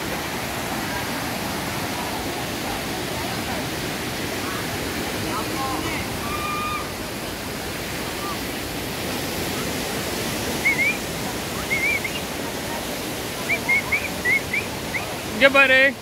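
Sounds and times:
river water rushing over boulders: 0.0s - 16.0s.

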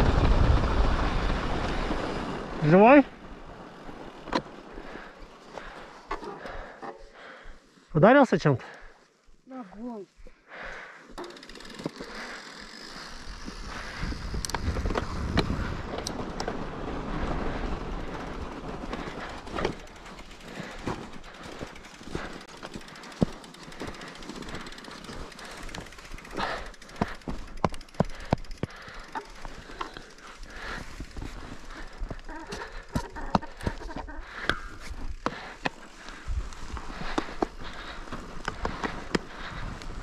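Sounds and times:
wind rumbling on microphone: 0.0s - 2.6s, 13.3s - 19.3s
bike tyres rolling over snow: 0.0s - 8.0s, 8.6s - 40.0s
bike clicks and rattles: 0.1s - 7.4s, 10.7s - 40.0s.

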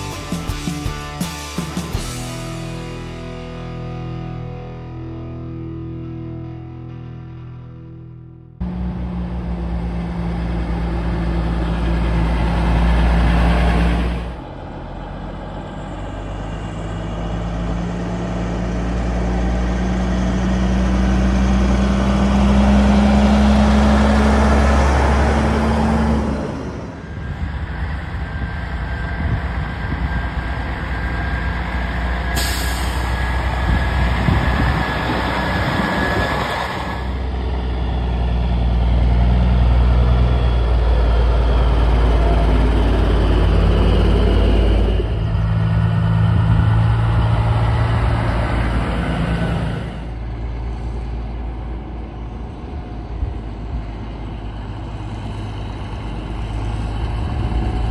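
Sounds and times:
diesel truck engines: 8.6s - 57.9s
air brakes hissing: 32.3s - 33.5s.

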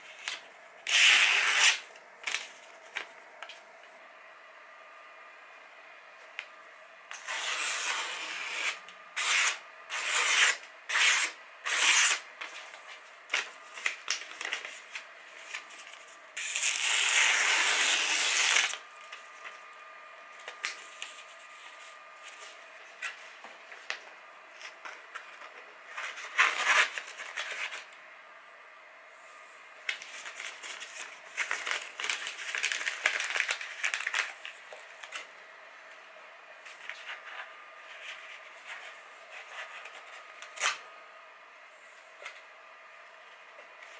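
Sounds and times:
paper handling: 0.1s - 3.9s, 11.7s - 16.9s, 29.8s - 35.3s
knife slicing paper: 0.2s - 2.5s, 7.1s - 12.3s, 16.4s - 18.8s.

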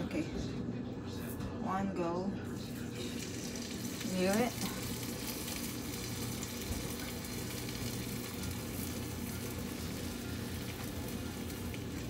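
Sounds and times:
fish frying sizzle: 3.0s - 12.0s.

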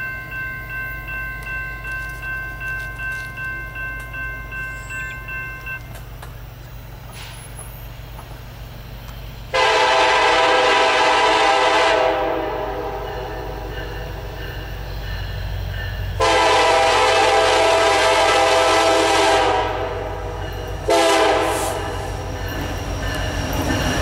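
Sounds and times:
locomotive horn blast: 9.5s - 13.2s, 16.2s - 22.1s.

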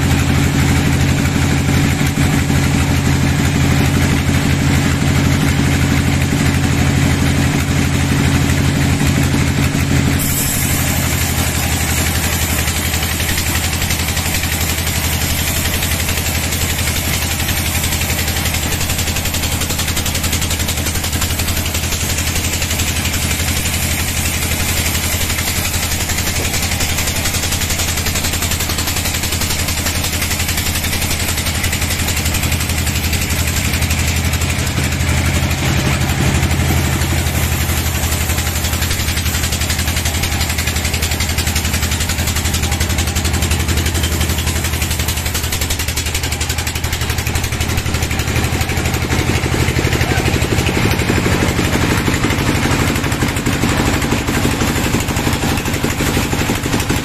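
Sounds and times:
bandsaw machine hum: 0.0s - 57.0s
saw blade hissing through wood: 9.8s - 35.3s.

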